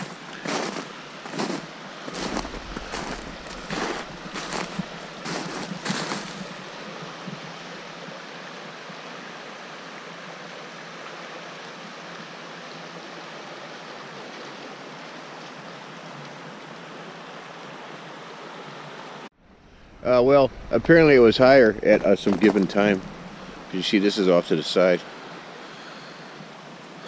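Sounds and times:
footsteps crunching on snow: 0:00.0 - 0:06.7, 0:20.9 - 0:23.8
creek water rushing: 0:00.0 - 0:27.0.

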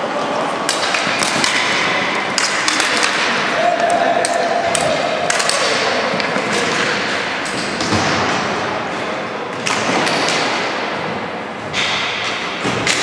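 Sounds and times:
steady din of hall: 0:00.0 - 0:13.0
sticks hitting ball: 0:00.6 - 0:08.3
ball hitting rink boards: 0:00.6 - 0:08.9, 0:09.5 - 0:13.0.

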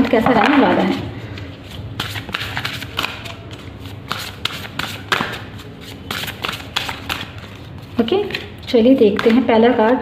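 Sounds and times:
cards being shuffled: 0:00.9 - 0:09.4.

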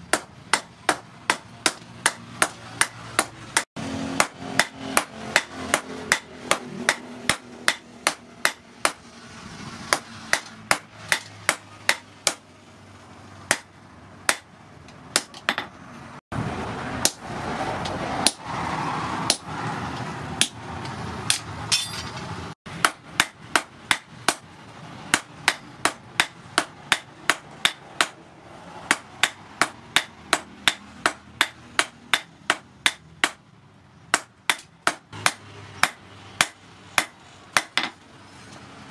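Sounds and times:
hammer striking metal on anvil: 0:04.1 - 0:09.0, 0:21.3 - 0:22.2.

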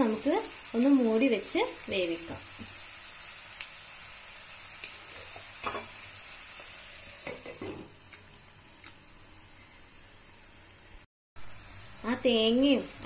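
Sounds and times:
frying sizzle: 0:00.0 - 0:13.0
glass lid clinking on pan: 0:05.6 - 0:05.9.

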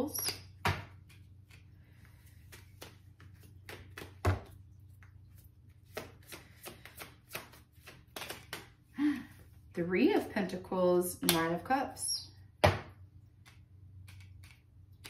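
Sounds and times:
cards flicking and slapping: 0:00.2 - 0:04.6, 0:05.7 - 0:08.9, 0:12.6 - 0:15.0.

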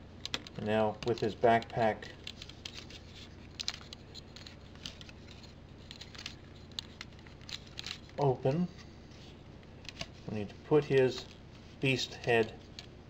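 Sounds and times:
plastic figure parts clicking: 0:00.2 - 0:02.9, 0:03.5 - 0:08.2.

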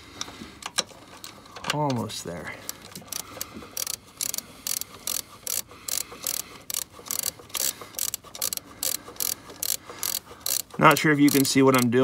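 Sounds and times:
socket ratchet clicking: 0:02.7 - 0:12.0.

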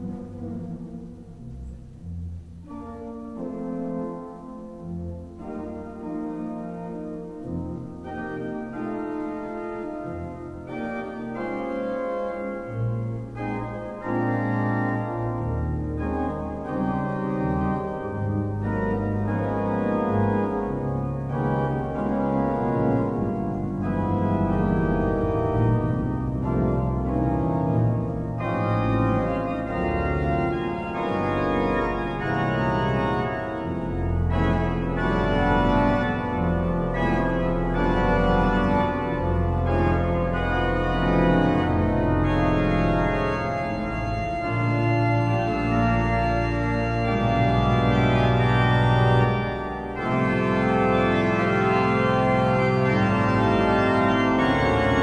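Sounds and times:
organ pedal bass notes: 0:00.0 - 0:55.0
pipe organ chords: 0:00.0 - 0:55.0.

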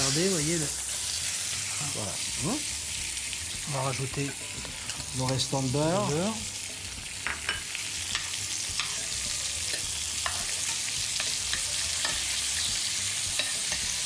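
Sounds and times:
fish sizzling in butter: 0:00.0 - 0:14.0.

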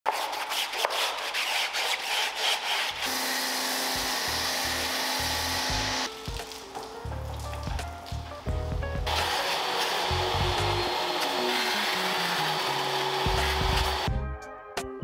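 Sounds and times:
stiff brush scrubbing: 0:00.1 - 0:03.1.

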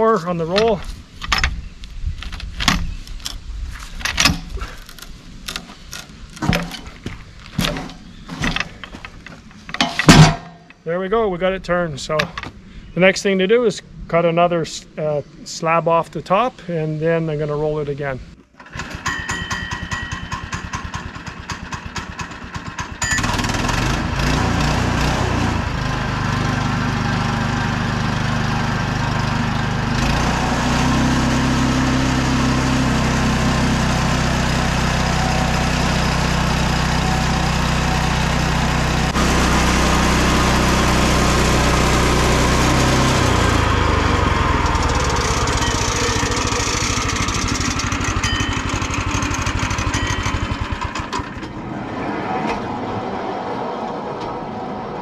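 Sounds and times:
sawmill gas engine running: 0:18.6 - 0:51.6.

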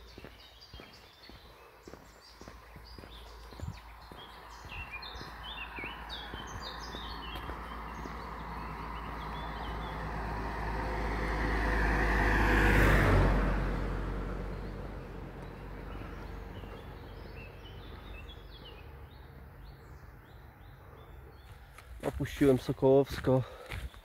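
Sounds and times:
faint birds chirping: 0:00.0 - 0:13.0, 0:13.8 - 0:24.0
vehicle driving past: 0:02.8 - 0:21.5.

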